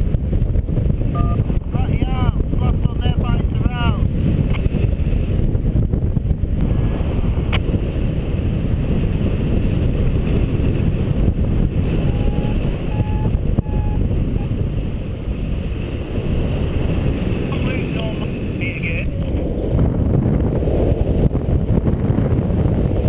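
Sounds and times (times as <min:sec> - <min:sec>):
airflow over microphone: 0:00.0 - 0:23.0
short beeps: 0:01.1 - 0:01.4, 0:12.1 - 0:14.5.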